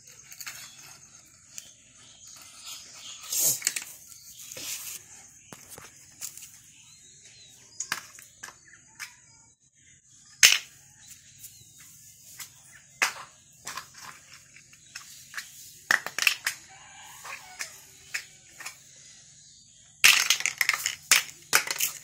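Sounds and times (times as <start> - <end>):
plastic blocks clacking: 0.0 - 6.5, 7.7 - 9.2, 10.4 - 11.4, 12.4 - 18.9, 20.0 - 22.0.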